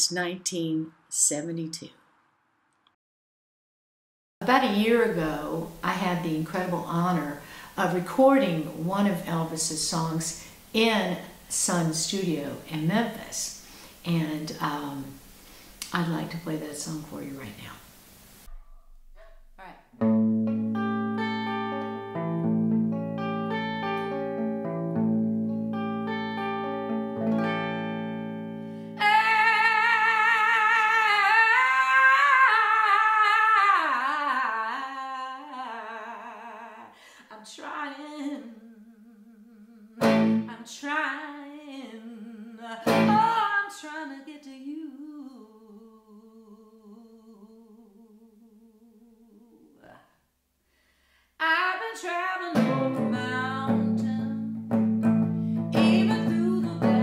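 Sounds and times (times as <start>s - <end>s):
electric guitar notes and chords: 20.0s - 29.0s, 40.0s - 40.5s, 42.9s - 43.3s, 52.6s - 57.0s.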